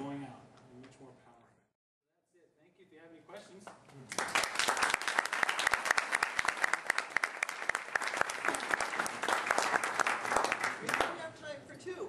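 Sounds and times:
audience applauding: 4.1 - 11.2.

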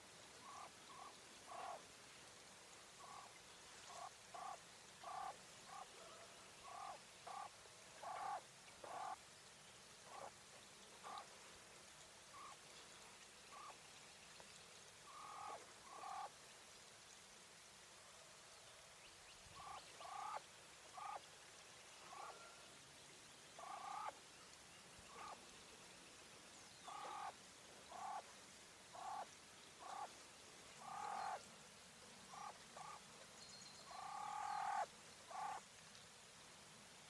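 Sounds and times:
quail calling: 0.5 - 1.8, 3.9 - 5.9, 6.7 - 9.2, 15.1 - 16.3, 19.6 - 20.4, 21.0 - 21.2, 23.6 - 24.1, 25.2 - 25.4, 26.9 - 27.3, 27.9 - 28.2, 29.0 - 30.1, 30.8 - 31.4, 32.3 - 33.0, 34.0 - 35.6.

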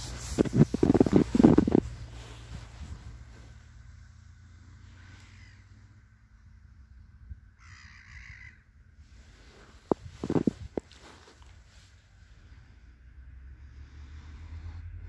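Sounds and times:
low steady rumble: 0.0 - 15.0
crow cawing: 5.2 - 5.7, 7.6 - 8.7.

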